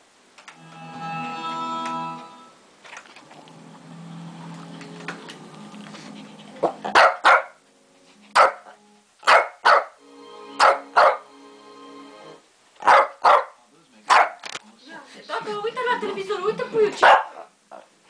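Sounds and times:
television soundtrack music: 0:00.0 - 0:18.0
dog barking: 0:06.6 - 0:07.6, 0:08.4 - 0:10.0, 0:10.6 - 0:11.2, 0:12.8 - 0:14.4, 0:17.0 - 0:17.8.

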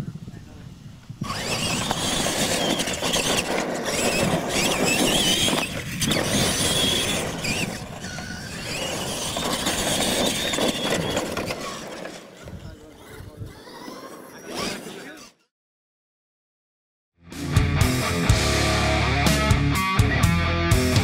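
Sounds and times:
toy trucks whining: 0:01.2 - 0:15.5.

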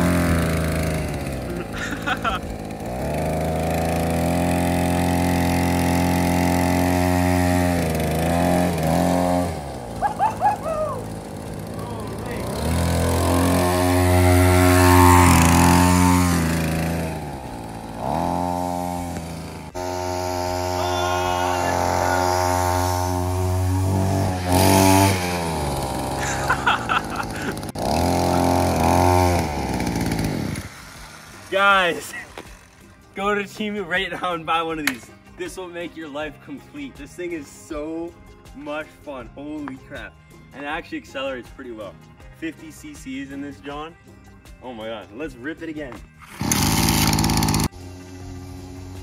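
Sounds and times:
dirt bike engine running: 0:00.0 - 0:33.2, 0:46.2 - 0:49.0.

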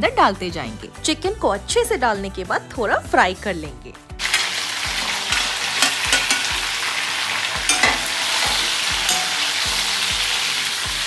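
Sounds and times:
metal ladle scraping a wok: 0:04.2 - 0:09.9
food sizzling in a wok: 0:04.2 - 0:11.0.

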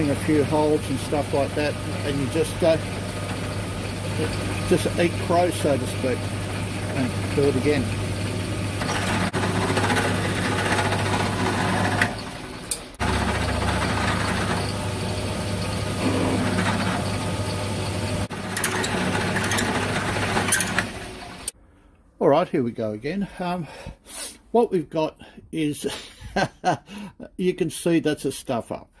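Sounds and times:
drill boring into metal: 0:00.0 - 0:21.5
milling machine motor humming: 0:00.0 - 0:21.5.

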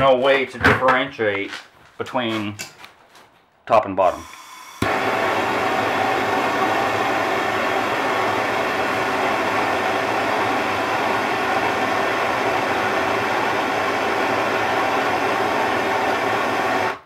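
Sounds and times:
gas torch flame burning: 0:04.1 - 0:17.0.

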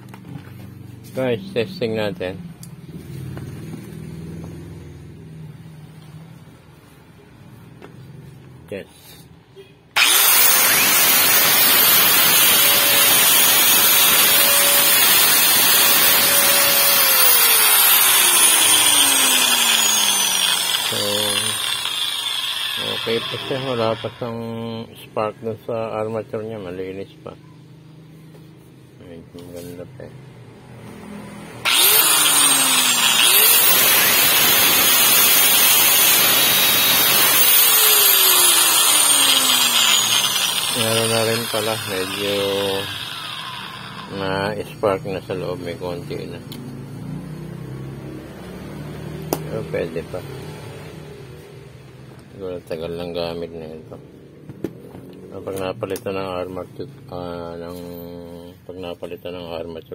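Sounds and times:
angle grinder motor whine: 0:10.0 - 0:24.7, 0:31.6 - 0:44.6.

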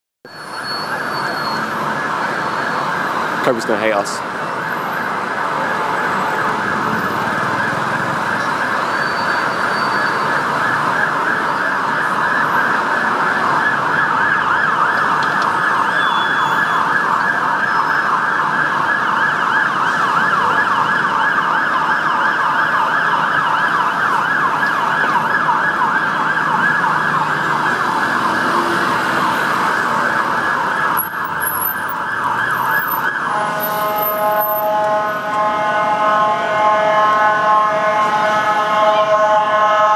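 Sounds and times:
fire engine siren yelping: 0:00.3 - 0:39.9
blaring horn tone: 0:32.8 - 0:39.9.

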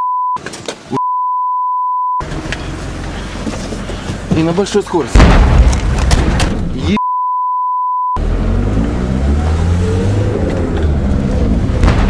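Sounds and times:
high bleep tone: 0:00.0 - 0:00.4, 0:01.0 - 0:02.2, 0:07.0 - 0:08.2
van engine rumble: 0:02.2 - 0:07.0, 0:08.2 - 0:12.0.

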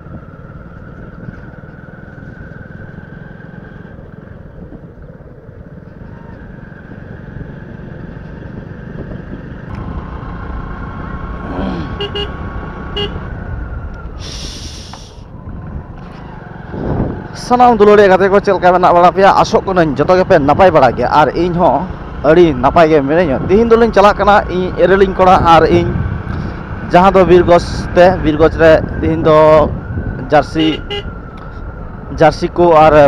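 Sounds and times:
motorcycle engine running: 0:00.0 - 0:13.9
wind and road noise: 0:00.0 - 0:33.0.

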